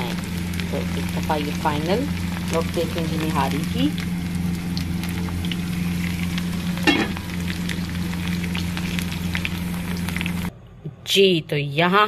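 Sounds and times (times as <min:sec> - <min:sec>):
onions sizzling in a pan: 0:00.0 - 0:10.5
low hum: 0:00.0 - 0:11.0.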